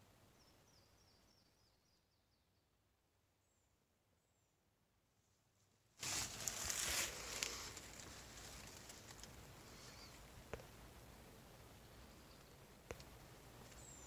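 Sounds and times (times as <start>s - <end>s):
dry leaves rustling and crackling: 6.0s - 10.2s.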